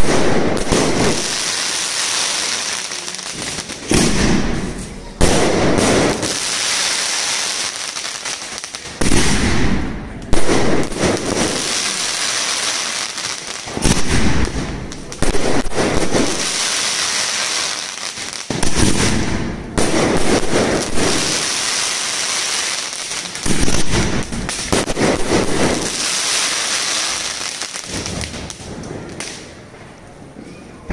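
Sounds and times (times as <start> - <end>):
firework crackling: 0.0 - 29.7
firework bangs: 0.0 - 29.8.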